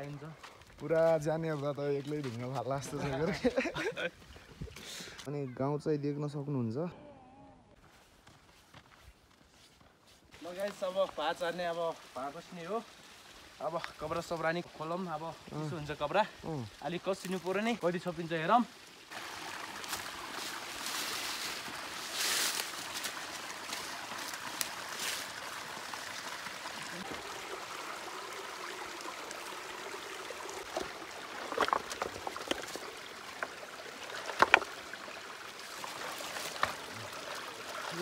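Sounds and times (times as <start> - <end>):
stream trickling over rocks: 0.0 - 5.3, 10.3 - 38.0
stones knocking: 30.6 - 34.9, 35.9 - 36.9.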